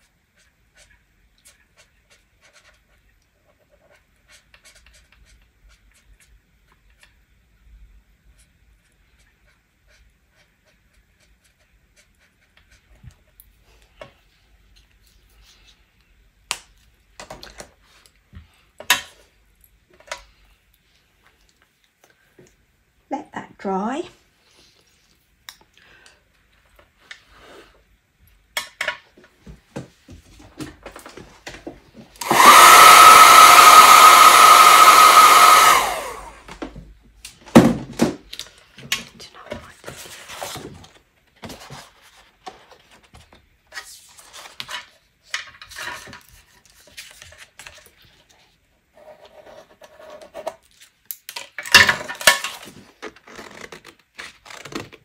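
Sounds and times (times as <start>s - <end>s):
electric dryer whining: 31.9s - 36.8s
paper rustling: 45.8s - 48.5s.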